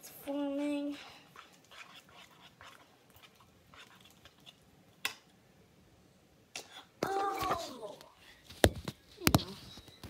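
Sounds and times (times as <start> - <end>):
slime squishing while stirred: 1.2 - 5.2.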